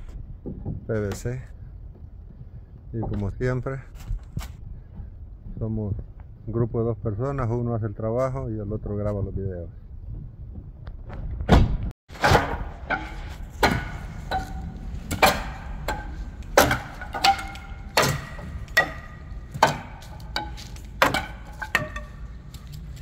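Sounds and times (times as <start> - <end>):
hammer blows on wood: 12.2 - 22.6.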